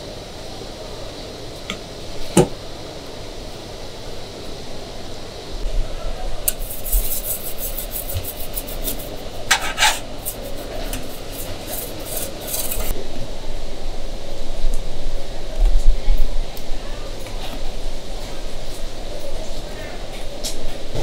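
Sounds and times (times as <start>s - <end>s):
metal utensils scraping pancake shells: 6.7s - 12.9s.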